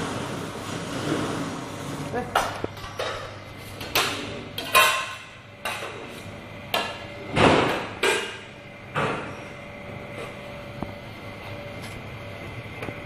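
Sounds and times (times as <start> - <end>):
metal pans and utensils clattering: 2.1 - 8.5.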